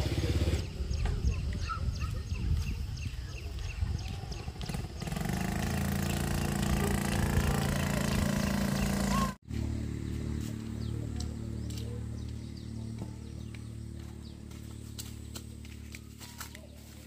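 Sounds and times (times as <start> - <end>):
engine running: 0.0 - 1.3, 3.5 - 17.0
low engine hum: 0.0 - 17.0.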